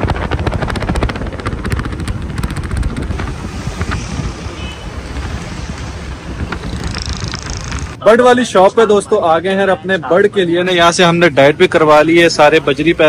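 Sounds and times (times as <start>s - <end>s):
vehicle engine pulsing: 0.0s - 8.0s
wind rumble on microphone: 0.0s - 8.0s.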